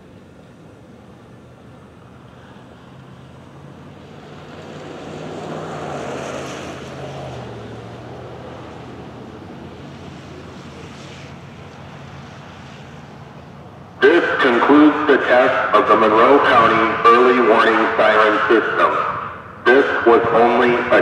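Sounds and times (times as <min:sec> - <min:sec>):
passing vehicle rush: 0:01.0 - 0:21.0.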